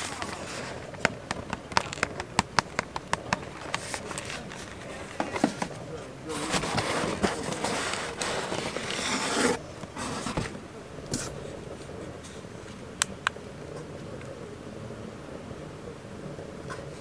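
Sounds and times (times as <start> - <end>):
cardboard scraping: 0.0 - 11.6.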